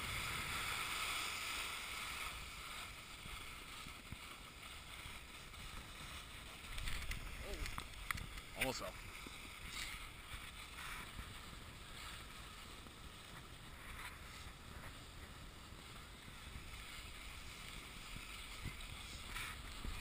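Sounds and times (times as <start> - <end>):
skis scraping on packed snow: 0.0 - 20.0
wind on microphone: 5.2 - 20.0.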